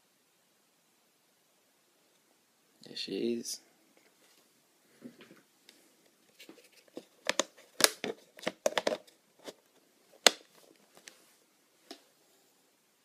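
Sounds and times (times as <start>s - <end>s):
plastic crackling and clicking: 6.7s - 9.2s.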